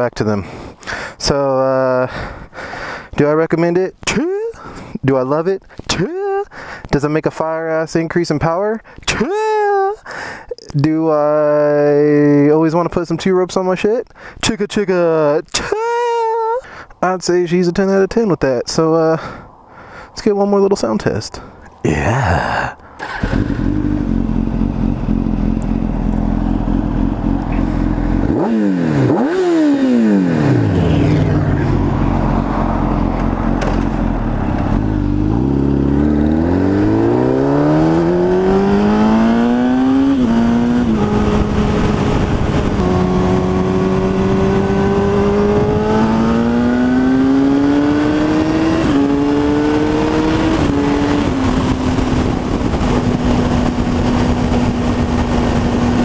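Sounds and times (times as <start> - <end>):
motorcycle engine revving: 23.0 - 56.0.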